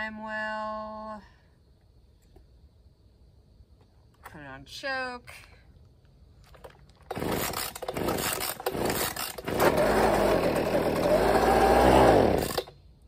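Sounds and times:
starter rope pulls: 6.4 - 12.8
leaf blower engine running unevenly: 7.1 - 12.7.

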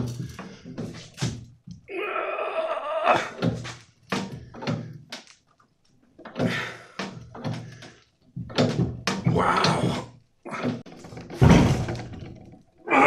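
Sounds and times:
metal frame knocking: 6.2 - 12.9.

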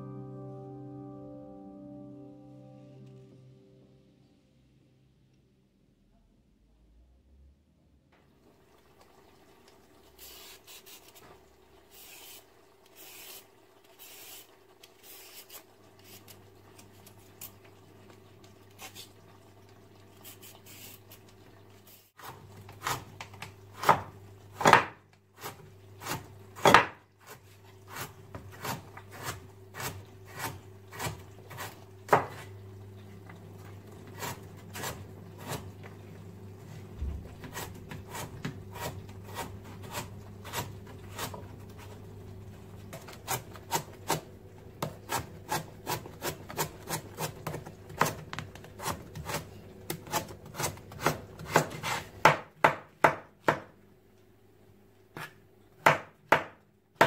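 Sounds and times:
knife chopping on cutting board: 23.8 - 27.0, 27.9 - 32.4, 37.4 - 41.4, 42.9 - 53.7, 55.2 - 56.6.

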